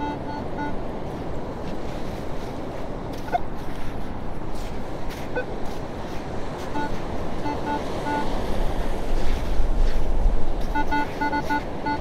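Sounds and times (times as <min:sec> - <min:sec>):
metal detector beeps: 0:00.0 - 0:00.8, 0:06.8 - 0:08.3, 0:10.7 - 0:12.0
surf and wind: 0:00.0 - 0:12.0.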